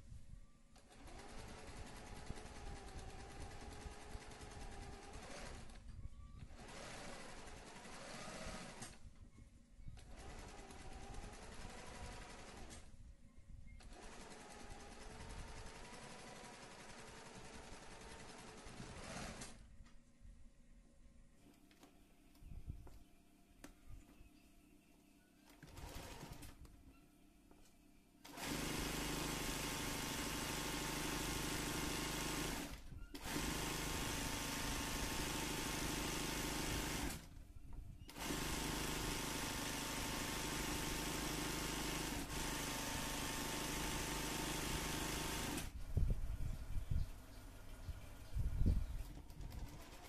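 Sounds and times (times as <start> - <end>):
sewing machine stitching: 0.8 - 9.1, 10.0 - 12.9, 13.8 - 19.6, 25.4 - 26.7, 28.2 - 37.4, 38.1 - 45.8, 49.0 - 50.0.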